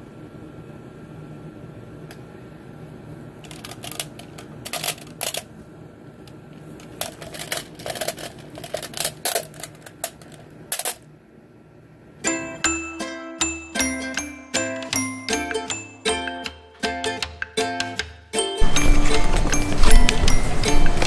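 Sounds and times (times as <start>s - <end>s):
faint steady hum: 0.0s - 17.0s
marbles clicking and rattling: 7.0s - 11.0s.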